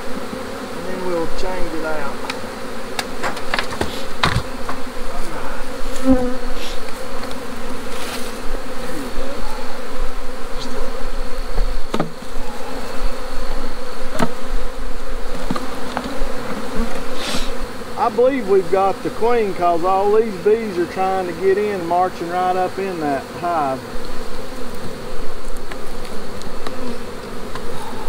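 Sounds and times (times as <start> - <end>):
bees whining past: 0.0 - 28.0
honeybees buzzing: 0.0 - 28.0
knocks on wooden hive boxes: 2.2 - 4.9, 11.5 - 12.2, 14.1 - 14.4.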